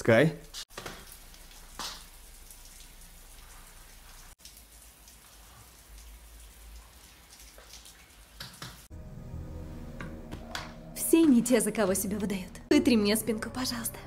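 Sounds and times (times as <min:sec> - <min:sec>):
steady rain hiss: 0:00.0 - 0:08.9.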